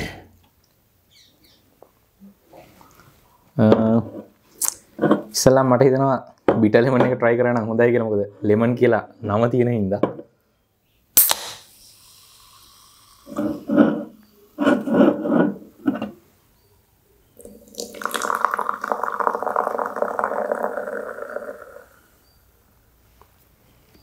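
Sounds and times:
can cracked open with pop: 11.2s - 11.9s
fizzy drink pouring into glass: 11.7s - 13.4s, 17.4s - 22.0s.

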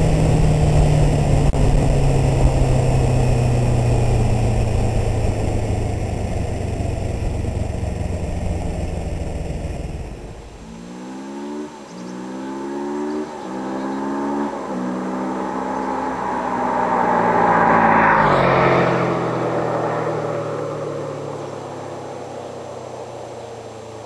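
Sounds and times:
motorcycle accelerating and passing: 0.0s - 24.0s.

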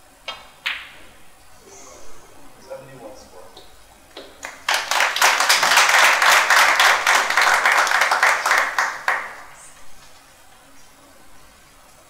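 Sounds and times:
audience applauding: 4.2s - 9.7s.

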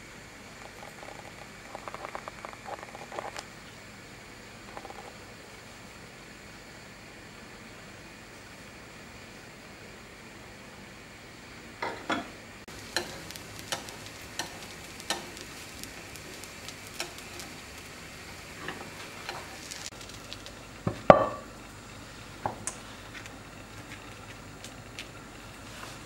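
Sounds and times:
batter sizzling in a pan: 0.0s - 9.4s, 12.6s - 26.0s
utensil tapping cookware: 12.9s - 15.4s.

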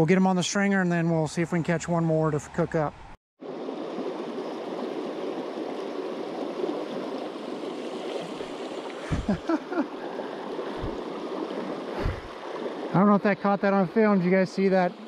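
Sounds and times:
water rushing over rocks: 3.4s - 15.0s
low bumps: 10.8s - 11.0s.

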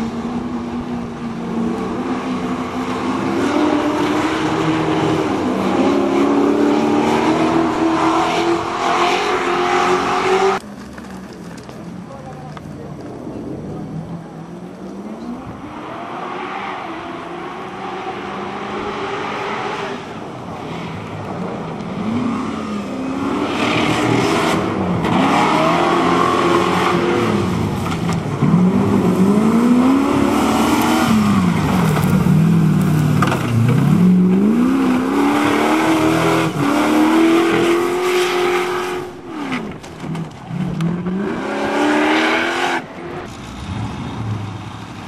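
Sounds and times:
off-road vehicle engine revving: 22.0s - 45.0s.

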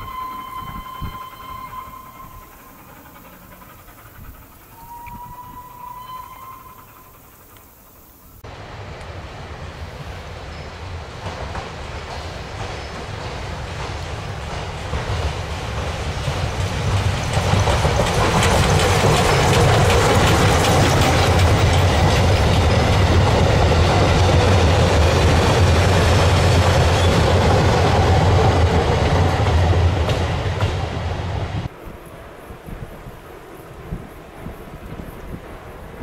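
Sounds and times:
train wheels clattering over rails: 0.0s - 6.1s, 10.5s - 31.8s.

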